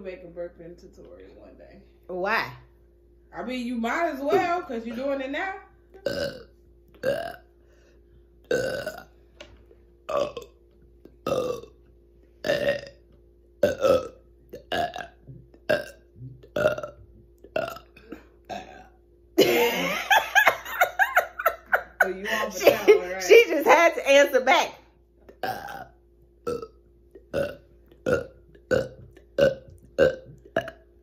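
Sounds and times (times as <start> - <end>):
woman laughing: 4.2 - 5.2, 19.4 - 23.5
woman burping: 6.0 - 7.5, 8.5 - 9.1, 10.1 - 10.5, 11.2 - 11.7, 12.4 - 13.0, 13.6 - 23.0, 25.3 - 30.9.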